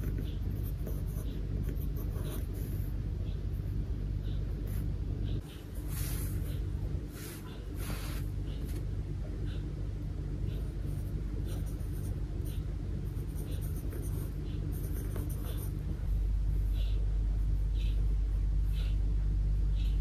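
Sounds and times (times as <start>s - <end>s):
pencil scratching on paper: 0.0s - 8.9s, 10.5s - 16.1s
low hum: 0.0s - 20.0s.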